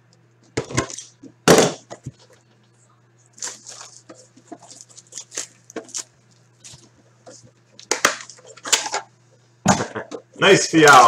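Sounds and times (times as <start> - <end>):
cardboard box wrapping crinkling: 3.4 - 6.1.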